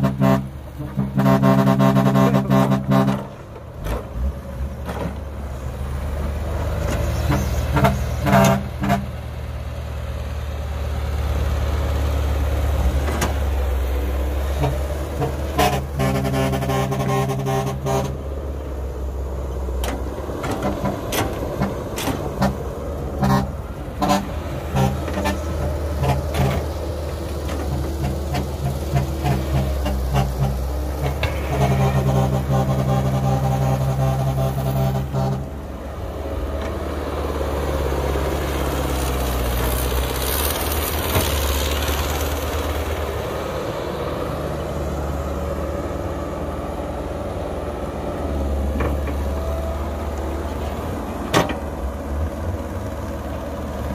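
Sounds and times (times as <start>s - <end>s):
horn-like pitched tone: 0.0s - 3.2s, 7.3s - 9.1s, 14.6s - 18.2s, 23.2s - 26.6s, 28.9s - 35.6s
excavator diesel engine under load: 0.0s - 53.9s.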